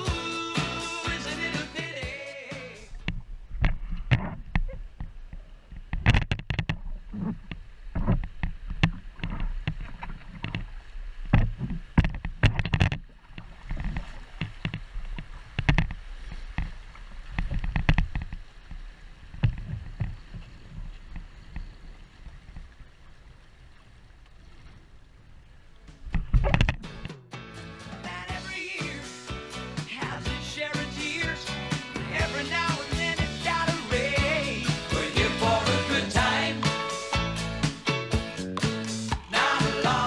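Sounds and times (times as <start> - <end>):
water slapping a hull: 3.0 - 27.1
rushing water: 6.6 - 27.1, 28.1 - 40.0
paddle splashes: 6.8 - 26.8, 38.6 - 39.6.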